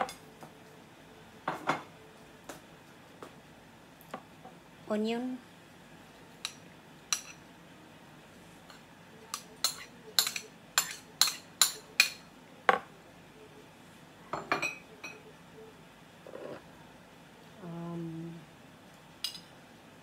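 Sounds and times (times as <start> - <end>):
metal spoon clinking bowls: 8.7 - 12.2, 19.2 - 19.5.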